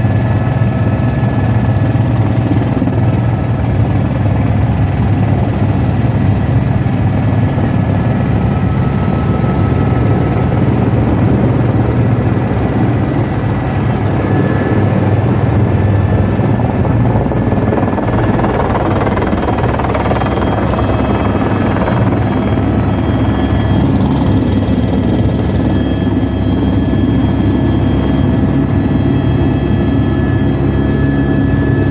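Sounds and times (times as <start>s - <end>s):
helicopter engine and rotor drone: 0.0s - 31.9s
high engine whine: 7.0s - 31.9s.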